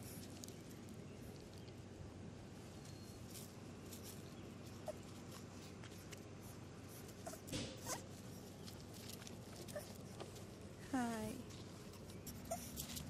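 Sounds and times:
puppy squeaking: 0:07.2 - 0:08.1, 0:12.2 - 0:13.0.

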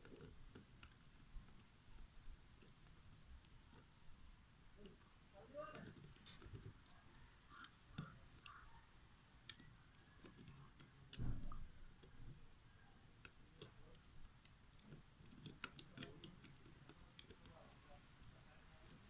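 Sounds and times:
small plastic parts clicking: 0:04.8 - 0:19.0.

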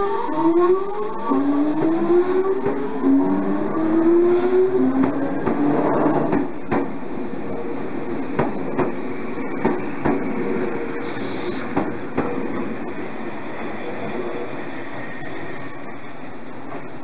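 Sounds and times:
electric train motor whine: 0:00.0 - 0:06.4
wheels clacking over rail joints: 0:04.8 - 0:12.9
short hiss: 0:11.0 - 0:11.8.

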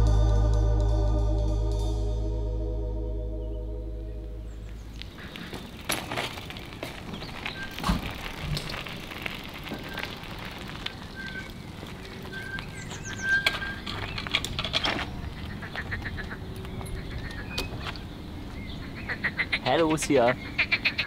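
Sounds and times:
birds whistling: 0:07.1 - 0:08.0, 0:11.0 - 0:14.4, 0:15.0 - 0:19.4.

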